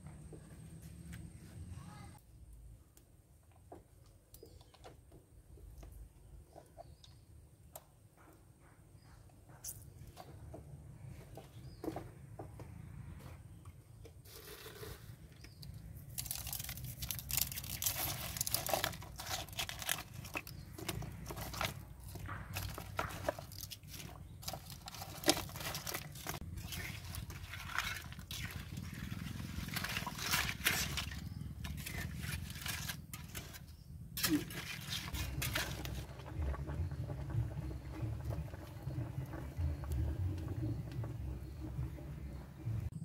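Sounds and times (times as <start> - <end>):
water boiling rumble: 14.3 - 43.0
wood fire crackling: 16.0 - 42.9.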